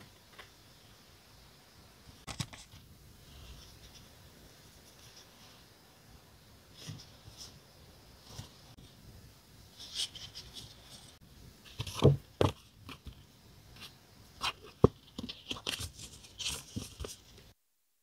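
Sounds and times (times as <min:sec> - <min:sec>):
paper rustling and crinkling: 0:13.8 - 0:17.4.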